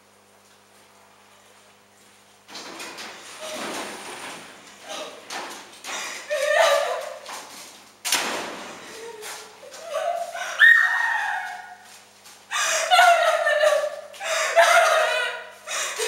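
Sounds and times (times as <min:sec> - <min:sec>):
woman screaming and wailing: 0:06.3 - 0:07.2, 0:09.0 - 0:11.8, 0:12.5 - 0:16.0
door slamming: 0:08.1 - 0:08.8.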